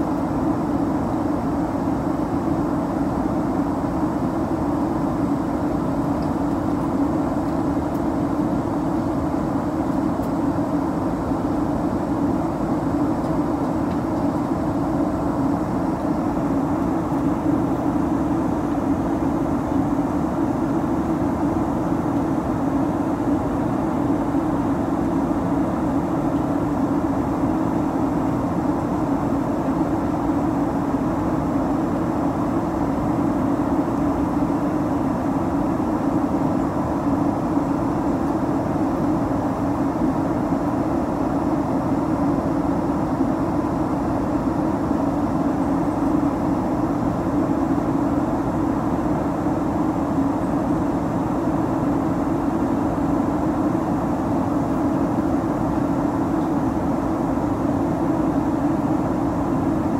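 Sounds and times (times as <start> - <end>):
airliner cabin drone: 0.0 - 59.9.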